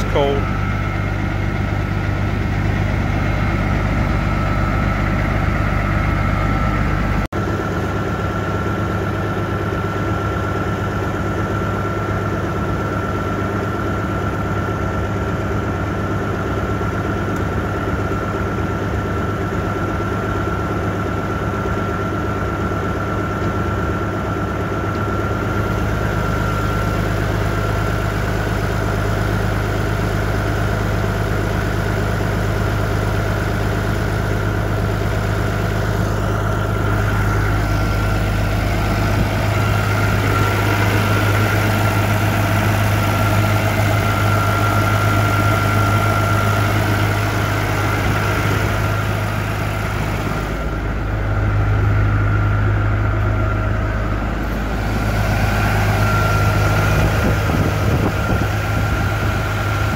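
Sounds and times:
steady high whine: 0.0s - 14.2s, 22.0s - 59.9s
diesel engine idling: 0.0s - 59.9s.

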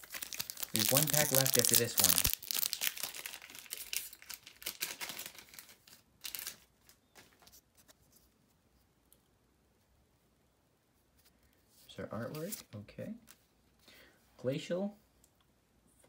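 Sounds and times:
wrapper tearing and crinkling: 0.0s - 7.0s.

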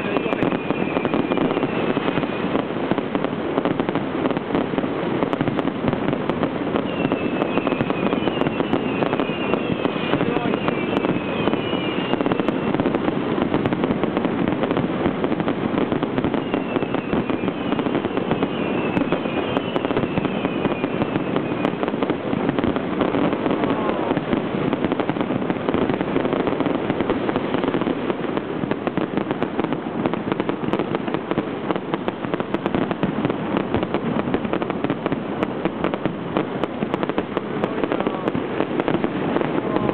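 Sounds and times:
firework whistles: 0.0s - 3.9s, 4.7s - 28.1s
fireworks bursting and crackling: 0.0s - 39.9s.

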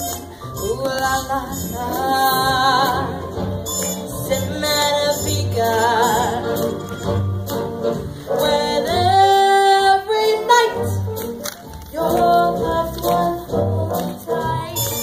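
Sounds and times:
woman singing into microphone: 0.6s - 3.3s, 8.4s - 11.0s, 11.9s - 15.0s.

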